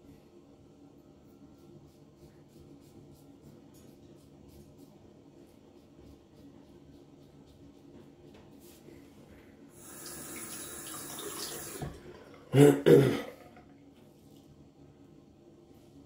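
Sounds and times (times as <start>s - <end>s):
sink tap running: 9.8s - 12.1s.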